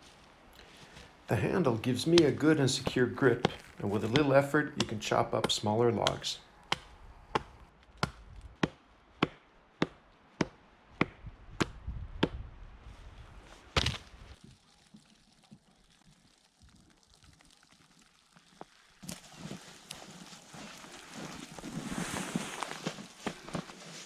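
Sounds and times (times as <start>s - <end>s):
hatchet chopping log: 2.0s - 12.4s, 13.8s - 14.0s.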